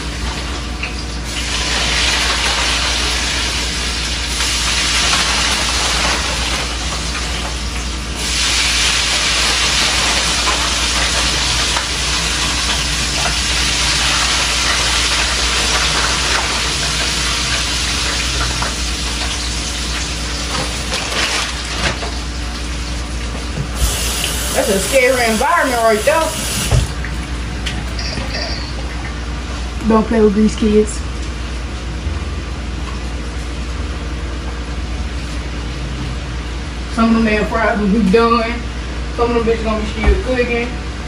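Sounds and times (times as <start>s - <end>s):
oil sizzling while deep-frying: 0.0s - 27.1s.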